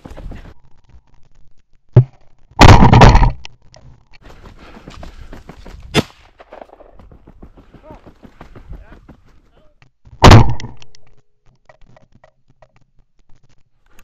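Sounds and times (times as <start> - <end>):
footsteps through dry grass and snow: 0.0 - 0.8, 4.2 - 9.6
shotgun shots: 10.2 - 10.8.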